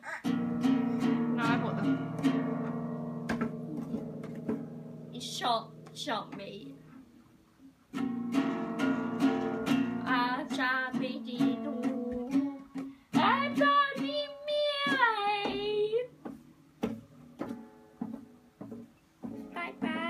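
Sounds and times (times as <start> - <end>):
acoustic guitar strumming: 0.2 - 20.0
guitar plucks: 0.2 - 20.0
girl singing: 10.0 - 16.1, 19.4 - 20.0.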